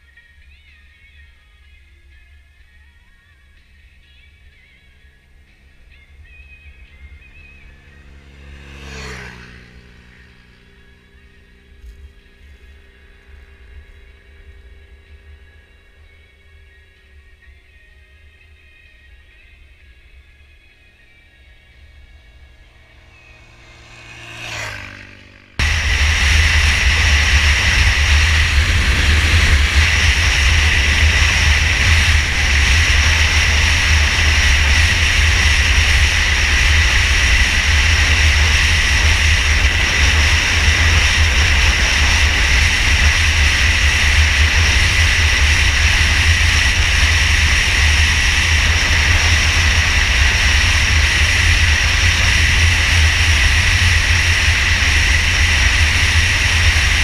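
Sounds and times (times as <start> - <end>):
motorcycle engine and tyre noise: 0.0 - 57.0
wind buffeting microphone: 25.6 - 57.0.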